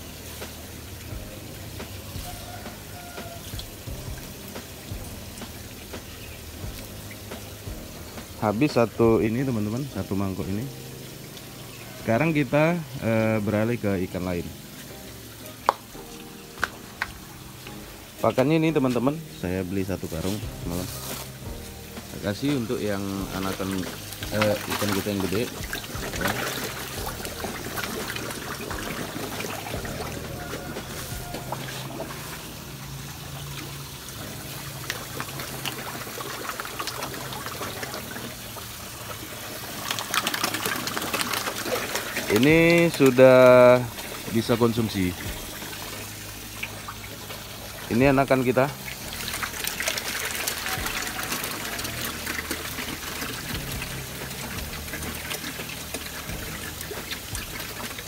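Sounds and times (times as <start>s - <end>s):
water trickling into a tank: 0.0s - 58.0s
short sharp splashes: 23.2s - 32.4s.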